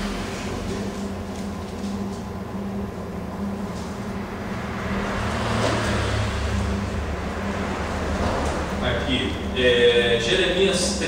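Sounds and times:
faint steady hum: 0.0 - 5.3
passing road traffic rumble: 0.0 - 11.0.

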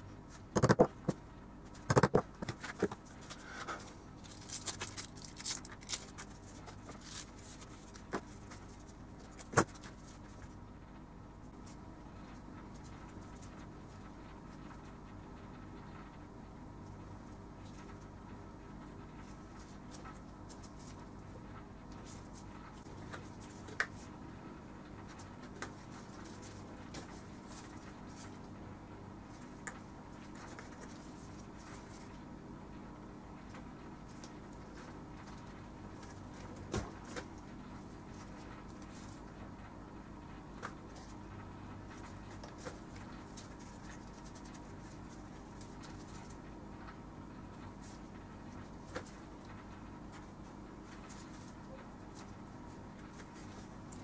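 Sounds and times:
low electrical hum: 0.0 - 54.0
soft rustles and scratches: 1.7 - 10.6, 11.4 - 15.1, 19.0 - 24.3, 24.9 - 28.6, 29.2 - 32.3, 34.0 - 39.7, 40.3 - 54.0.

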